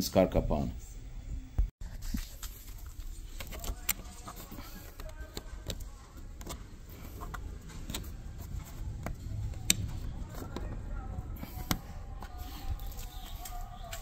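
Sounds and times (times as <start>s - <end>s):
fingertips tapping plastic grille: 3.3s - 13.1s
steady low rumble: 5.4s - 14.0s.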